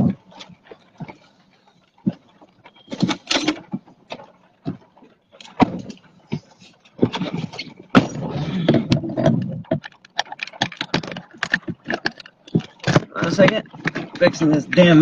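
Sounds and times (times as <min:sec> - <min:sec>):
plastic clicks and rattles: 0:08.7 - 0:15.0.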